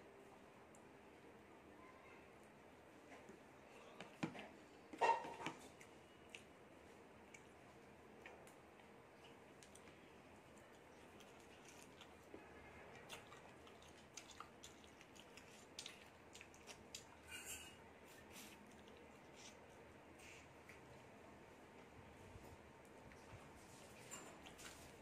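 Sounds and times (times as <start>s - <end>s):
chewing: 7.2s - 20.8s
wet clicks of eating by hand: 7.3s - 7.6s, 8.2s - 10.0s, 10.6s - 17.3s.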